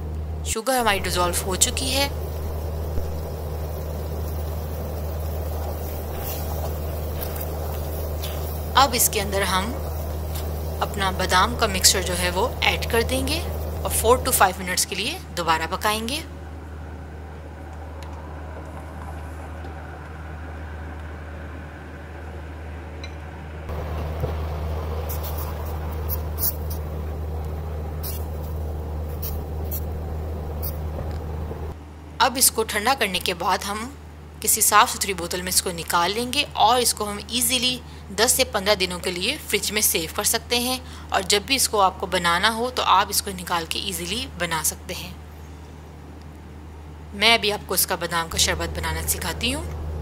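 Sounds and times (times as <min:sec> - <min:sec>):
low hum: 0:00.0 - 0:50.0
faint hiss: 0:00.8 - 0:16.6, 0:23.7 - 0:31.8
syrup boiling in a pot: 0:00.9 - 0:14.6, 0:23.7 - 0:30.8.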